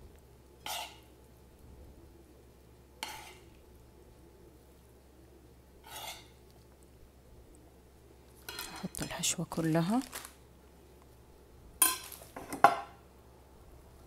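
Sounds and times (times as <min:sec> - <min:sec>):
faint low hum: 0:00.0 - 0:14.0
spoon scraping a pan: 0:00.6 - 0:01.1, 0:03.0 - 0:03.6, 0:05.8 - 0:06.4.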